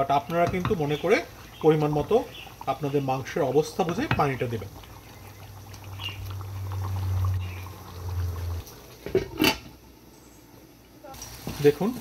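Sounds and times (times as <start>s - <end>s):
gravy simmering and bubbling: 0.0s - 10.2s.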